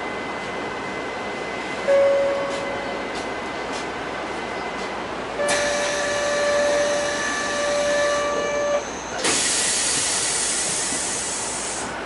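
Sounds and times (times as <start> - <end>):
high ringing tone: 1.8 - 3.0
compressed air hiss from train: 9.2 - 12.0.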